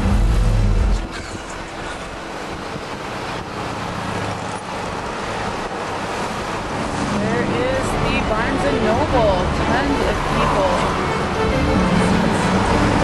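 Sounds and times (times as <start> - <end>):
loud bass-heavy music: 0.0 - 2.2, 7.0 - 13.0
road noise inside moving car: 0.0 - 13.0.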